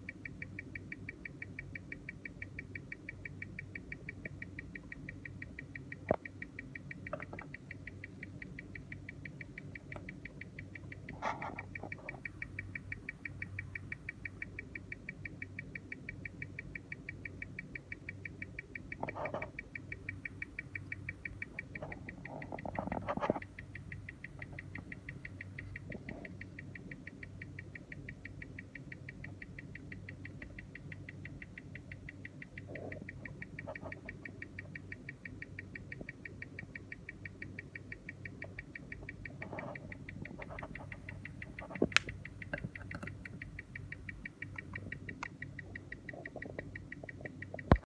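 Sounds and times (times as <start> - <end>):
watch ticking: 0.0 - 47.9
sharp click: 37.4 - 47.9.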